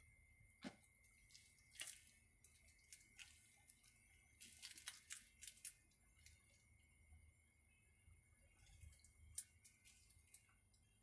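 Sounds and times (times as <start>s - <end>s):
faint steady high tone: 0.0s - 11.0s.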